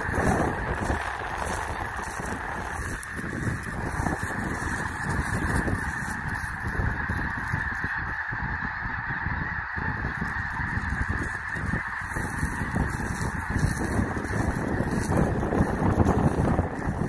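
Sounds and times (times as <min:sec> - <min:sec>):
geese honking in flight: 0:00.0 - 0:17.0.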